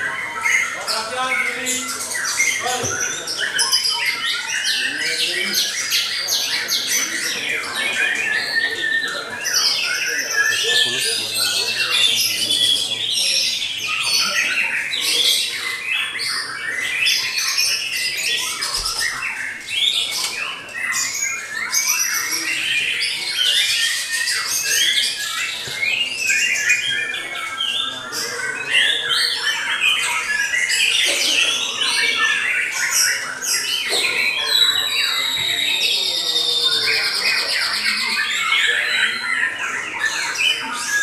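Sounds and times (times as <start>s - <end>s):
bird singing whistles and chirps: 32.0s - 41.0s.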